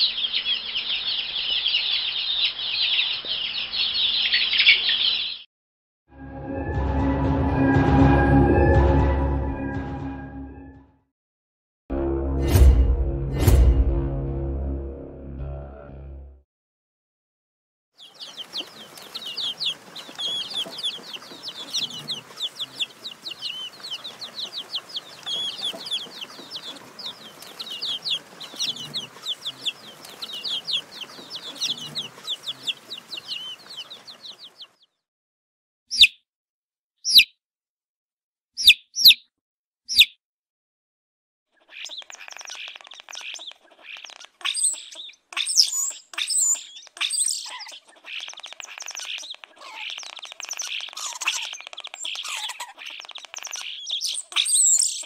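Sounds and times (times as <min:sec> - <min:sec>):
chicks peeping: 0:00.0 - 0:05.5, 0:18.0 - 0:34.9, 0:37.1 - 0:37.3, 0:38.6 - 0:39.2, 0:41.6 - 0:55.0.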